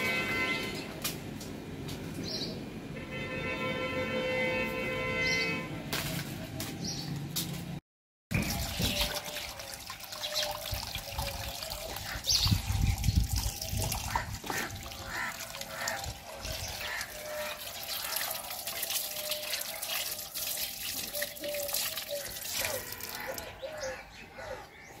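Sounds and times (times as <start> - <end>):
water splashing on ground: 8.3 - 23.6
water trickling from hose: 8.3 - 23.6.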